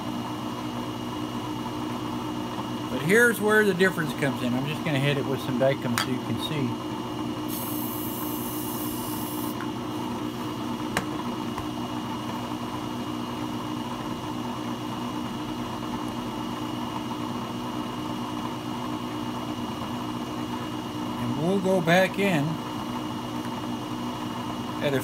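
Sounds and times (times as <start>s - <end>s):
brake lathe motor hum and whine: 0.0s - 25.0s
aerosol can hissing: 7.5s - 9.6s.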